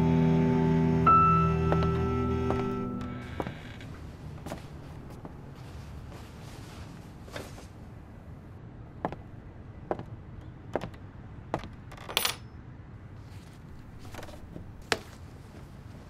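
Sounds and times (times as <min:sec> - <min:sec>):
footsteps on wooden floor: 0:01.4 - 0:06.3, 0:09.0 - 0:10.1, 0:10.7 - 0:11.8, 0:13.7 - 0:15.2.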